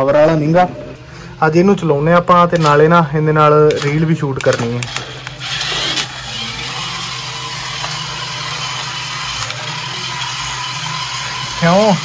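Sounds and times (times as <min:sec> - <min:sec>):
toy electric motor whirring: 0:03.8 - 0:12.0.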